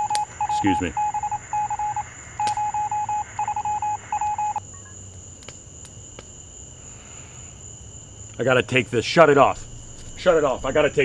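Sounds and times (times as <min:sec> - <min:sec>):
mobile phone ringtone trilling: 0:00.0 - 0:04.6.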